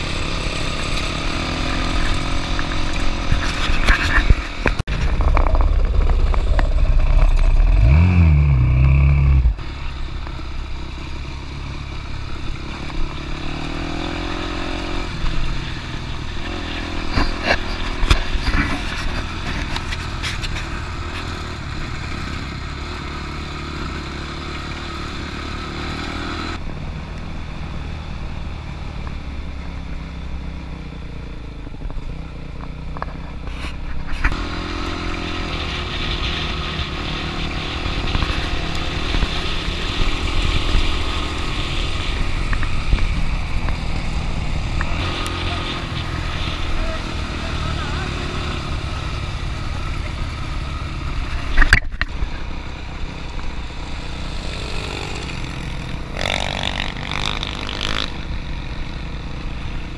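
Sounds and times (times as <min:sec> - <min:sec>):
dirt bike engine revving: 0:04.9 - 0:09.6, 0:53.9 - 0:58.3.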